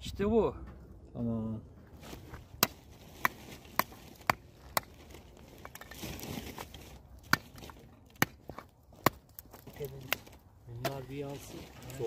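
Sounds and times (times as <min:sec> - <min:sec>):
firewood cracking: 0:02.5 - 0:12.0.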